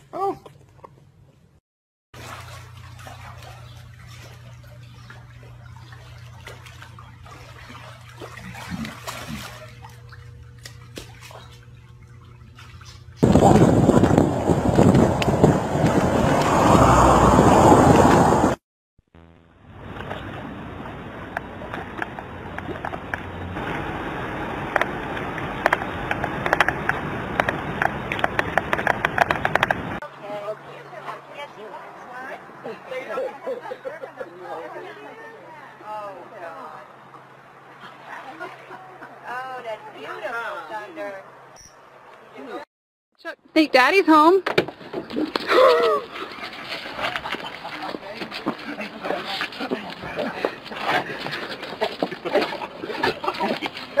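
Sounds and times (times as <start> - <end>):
water sloshing and lapping: 2.2 - 17.0, 19.9 - 30.0, 44.7 - 54.0
outdoor rushing noise: 13.2 - 18.6
low hum: 19.2 - 30.0.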